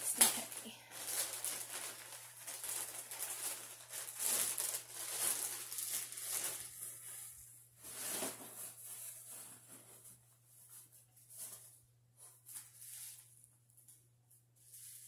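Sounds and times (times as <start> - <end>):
plastic bubble wrap crinkling: 0.0 - 11.6.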